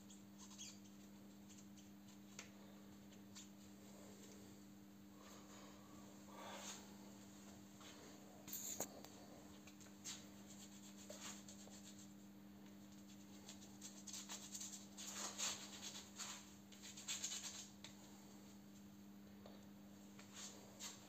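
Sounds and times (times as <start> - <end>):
low electrical hum: 0.0 - 21.0.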